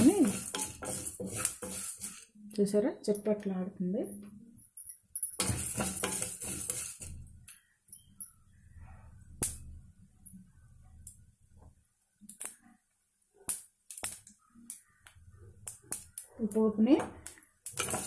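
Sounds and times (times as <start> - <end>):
crackles and pops of frying leaves: 0.0 - 2.3, 5.4 - 7.6, 9.4 - 9.7, 11.0 - 18.0
spoon scraping: 0.0 - 2.4, 5.4 - 7.3, 17.3 - 18.0
lentils roasting in oil: 0.0 - 2.8, 5.4 - 7.6, 12.2 - 12.6, 13.4 - 18.0.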